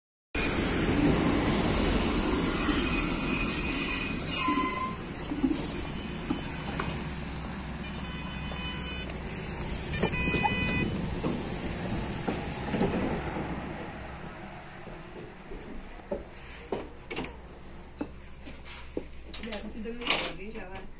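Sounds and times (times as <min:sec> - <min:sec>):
train brakes squealing: 0:00.4 - 0:07.4
train rumble: 0:00.4 - 0:20.9.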